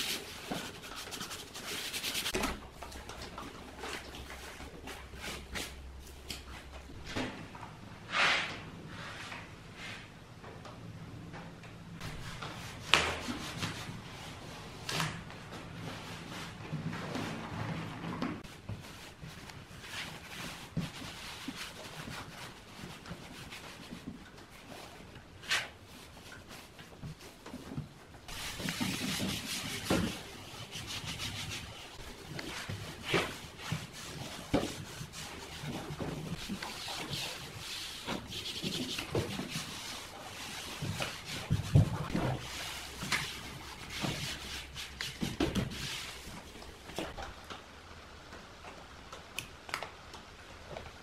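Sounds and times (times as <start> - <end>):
hands rubbing vinyl sheet: 0.0 - 2.4, 28.3 - 47.2.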